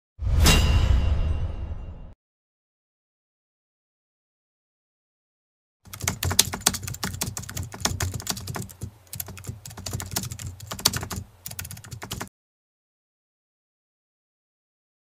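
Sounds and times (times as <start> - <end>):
keyboard typing: 5.9 - 12.3.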